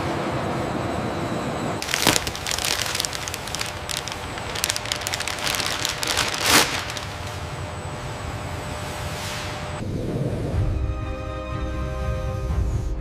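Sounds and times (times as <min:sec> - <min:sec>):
plastic sheeting crinkling: 0:01.8 - 0:07.6.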